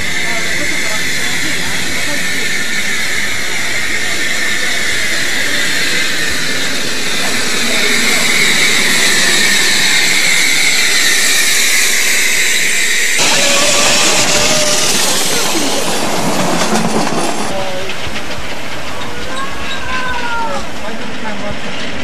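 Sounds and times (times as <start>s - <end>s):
steam locomotive hissing: 0.0s - 22.0s.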